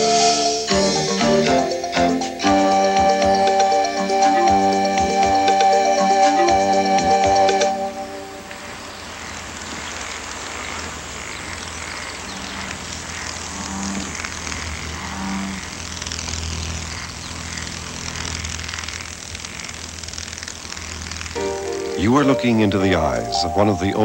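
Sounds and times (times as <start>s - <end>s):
dragonfly wings buzzing: 0.0s - 24.0s
faint high notes: 21.4s - 24.0s.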